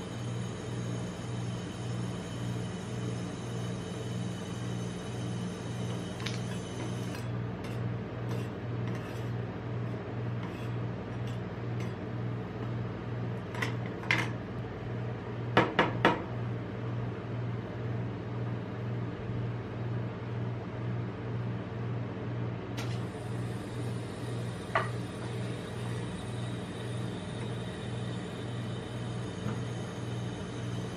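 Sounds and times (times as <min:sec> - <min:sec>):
refrigeration unit humming: 0:00.0 - 0:30.9.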